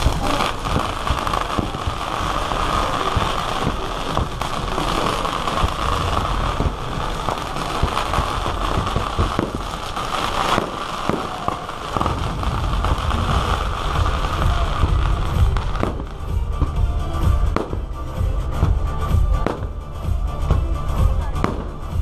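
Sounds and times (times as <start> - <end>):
fireworks bangs and crackles: 0.0 - 22.0
low rumble: 11.9 - 22.0.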